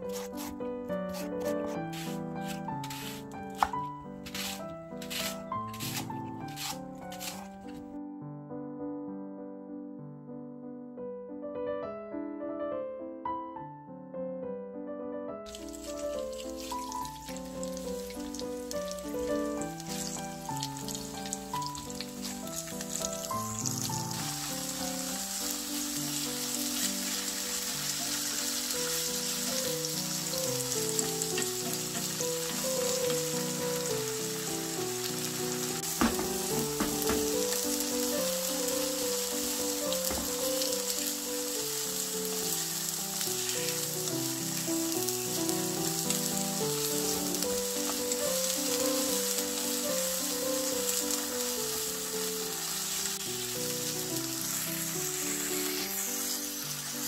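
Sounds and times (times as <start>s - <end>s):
soft background music: 0.0s - 9.6s, 11.1s - 57.0s
wooden spatula knocking pan: 1.6s - 6.0s, 35.9s - 37.5s, 40.0s - 40.4s
tofu sizzling in a frying pan: 15.5s - 57.0s.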